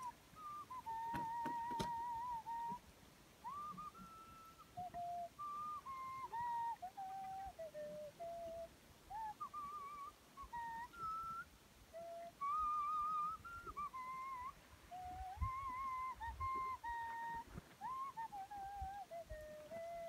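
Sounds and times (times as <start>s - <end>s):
slow whistle-like melody: 0.0s - 20.0s.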